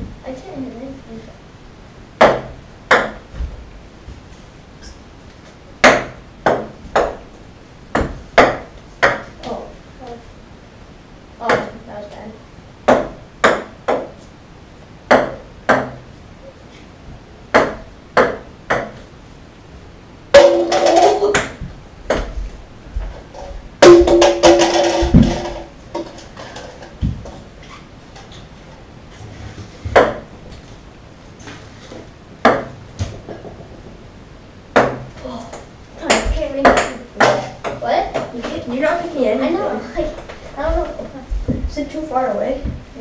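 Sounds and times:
ping-pong balls bouncing on table: 2.2 - 3.2, 5.8 - 7.2, 7.9 - 9.3, 11.4 - 11.7, 12.9 - 14.2, 15.1 - 16.1, 17.5 - 19.0, 20.4 - 22.4, 23.8 - 26.1, 30.0 - 30.3, 32.4 - 32.8, 34.8 - 38.6
balls hitting plastic cups: 2.2 - 3.6, 5.8 - 10.2, 12.8 - 14.3, 15.1 - 16.2, 17.5 - 19.1, 20.4 - 27.5, 29.8 - 30.7, 31.5 - 33.7, 34.7 - 38.8.

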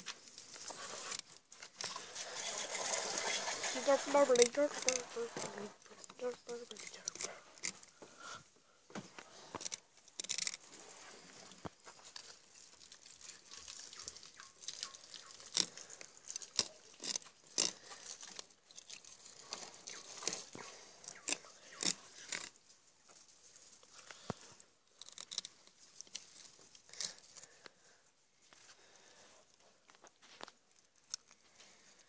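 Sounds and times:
knife cutting and scraping fish: 0.0 - 7.9, 12.1 - 22.6
crunches and sharp clicks: 9.0 - 10.7, 13.6 - 22.6, 24.1 - 27.8.

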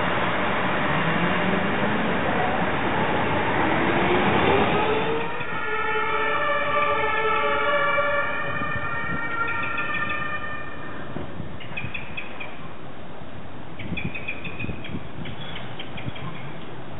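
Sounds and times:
tram motor whine rising: 0.0 - 11.1
tram rolling noise: 0.0 - 16.9.

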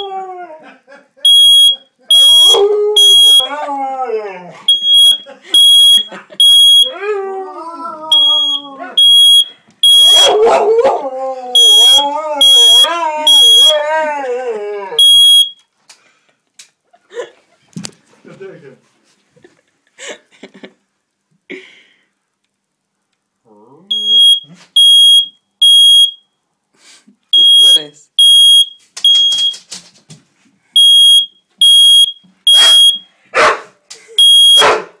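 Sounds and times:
smoke alarm beeping: 1.2 - 3.5, 4.7 - 7.0, 8.1 - 10.4, 11.6 - 13.8, 15.0 - 15.7, 23.9 - 26.4, 27.3 - 29.7, 30.8 - 33.1, 34.2 - 34.8
dog howling: 2.6 - 4.6, 6.9 - 9.0, 10.2 - 15.0
dog barking: 10.1 - 11.0, 32.5 - 33.8, 34.6 - 35.0.

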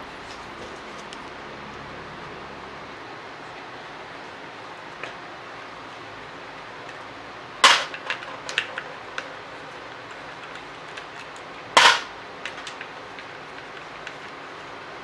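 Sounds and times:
screws cracking loose: 9.9 - 14.2.

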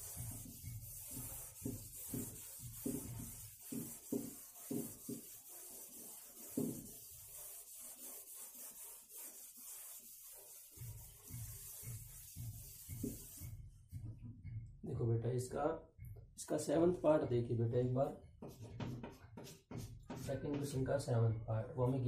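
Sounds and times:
duster rubbing on blackboard: 0.0 - 13.6, 18.4 - 20.5.

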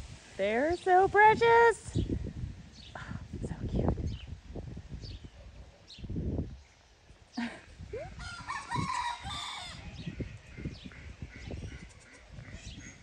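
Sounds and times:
rooster crowing: 8.2 - 10.1.

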